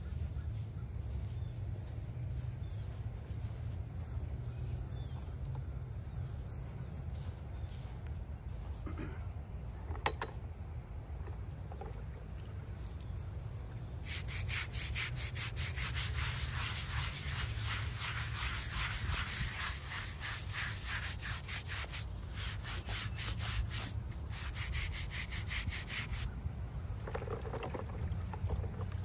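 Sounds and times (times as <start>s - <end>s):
brush scrubbing stone: 14.0s - 26.3s, 27.0s - 29.0s.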